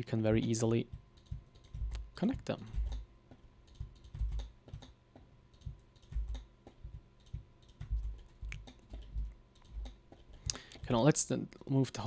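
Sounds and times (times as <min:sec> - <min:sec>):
keyboard keys clicking: 0:01.2 - 0:02.0, 0:03.7 - 0:04.9, 0:05.5 - 0:10.6.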